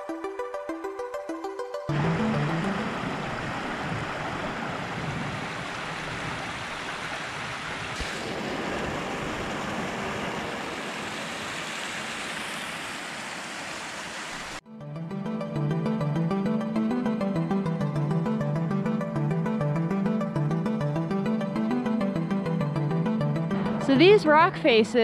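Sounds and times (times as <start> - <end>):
creek water rushing over rocks: 1.9 - 14.6.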